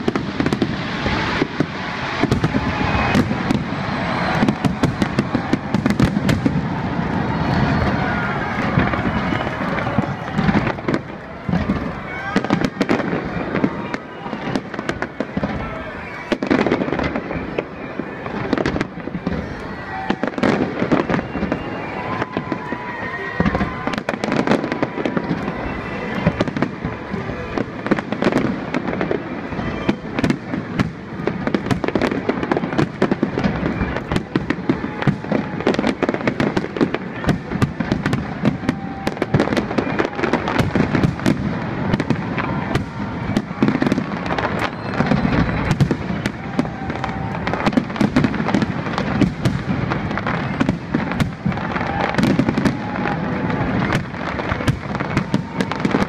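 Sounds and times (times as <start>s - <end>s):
fireworks bursting and crackling: 0.0s - 56.0s.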